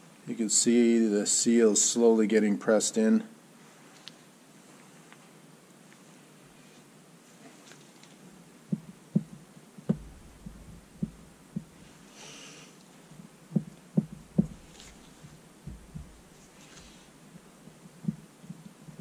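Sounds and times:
dull thumps of piston pressing: 8.7s - 11.8s, 13.6s - 16.4s.

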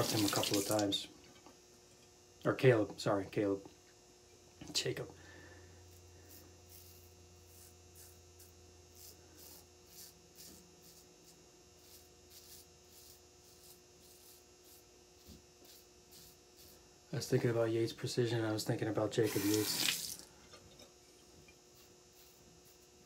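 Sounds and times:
low steady hum: 0.0s - 23.0s
razor scraping stubble: 5.9s - 17.6s, 19.2s - 20.2s, 21.7s - 23.0s.

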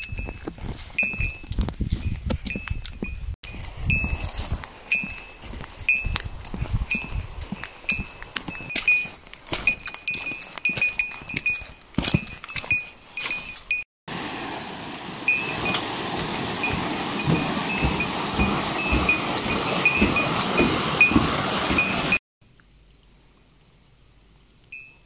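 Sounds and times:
footsteps on steel planking: 0.0s - 13.8s, 15.6s - 22.2s
walking footsteps: 0.0s - 13.8s, 15.6s - 22.2s
hiker's bell jingling: 0.0s - 13.9s, 15.3s - 22.2s
stream rushing: 6.9s - 22.2s.

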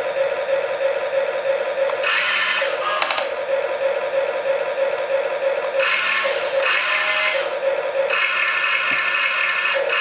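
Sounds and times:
small electric motors whirring: 2.0s - 3.0s, 5.8s - 10.0s.

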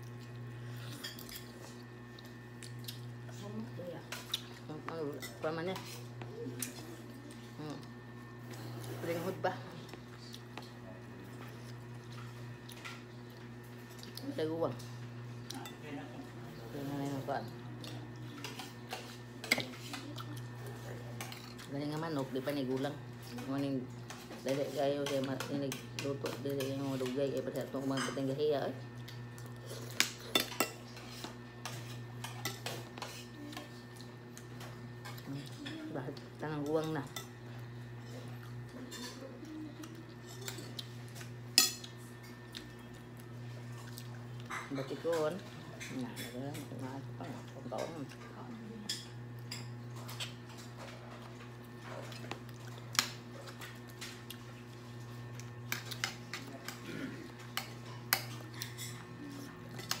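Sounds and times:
steady low hum: 0.0s - 60.0s.

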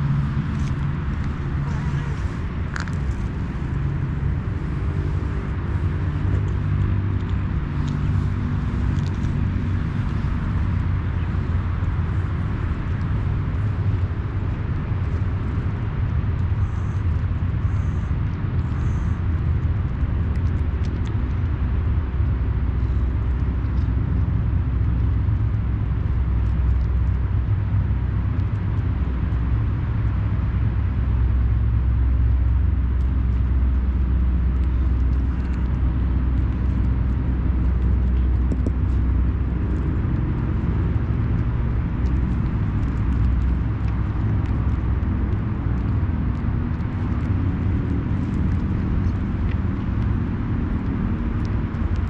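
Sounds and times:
cat crunching dry kibble: 0.0s - 31.1s, 32.0s - 52.0s
distant road traffic rumble: 0.0s - 52.0s.

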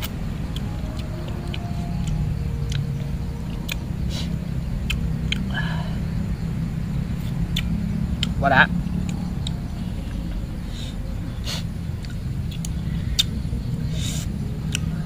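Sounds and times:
chewing: 0.0s - 5.8s, 9.0s - 15.0s
steady low rumble: 0.0s - 15.0s.

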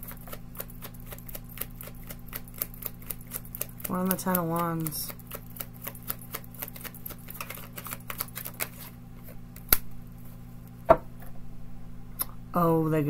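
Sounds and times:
cards shuffling: 2.2s - 9.9s.

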